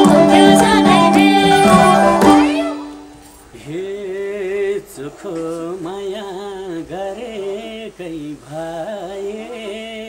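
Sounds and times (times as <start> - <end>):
man singing folk song: 3.5 - 10.0.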